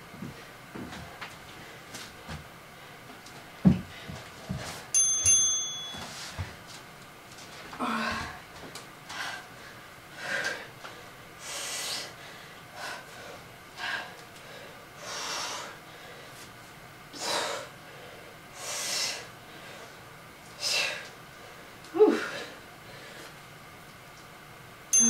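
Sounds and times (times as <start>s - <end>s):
woman breathing hard: 7.8s - 8.5s, 9.1s - 16.4s, 17.1s - 20.0s, 20.6s - 23.4s.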